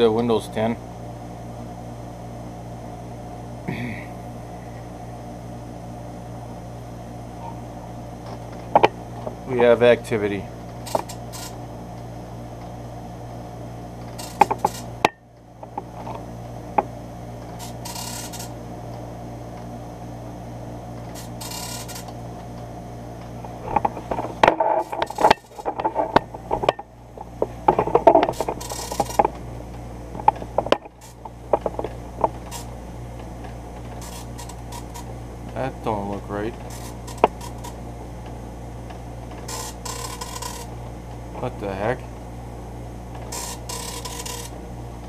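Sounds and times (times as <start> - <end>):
steady hum: 0.0 - 45.0
carriage and paper feed clicks: 14.1 - 14.9, 17.5 - 18.5, 33.8 - 35.1, 36.5 - 37.8, 39.3 - 40.7, 43.2 - 44.5
dot matrix printer chatter: 14.2 - 14.9, 17.6 - 18.5, 21.1 - 22.1, 28.2 - 29.2, 33.9 - 35.1, 36.6 - 37.8, 39.4 - 40.7, 43.3 - 44.5.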